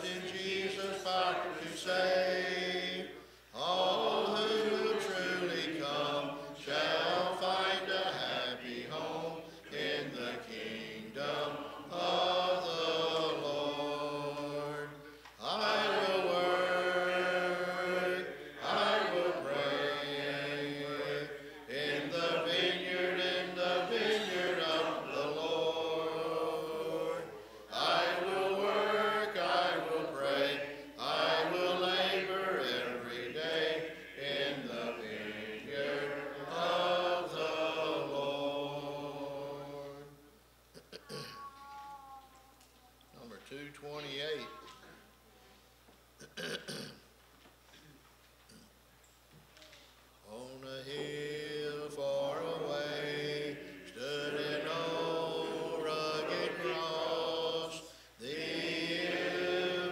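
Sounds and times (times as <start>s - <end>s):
congregation singing a hymn a cappella: 0.0s - 40.4s, 50.2s - 59.9s
man leading singing: 50.2s - 58.3s.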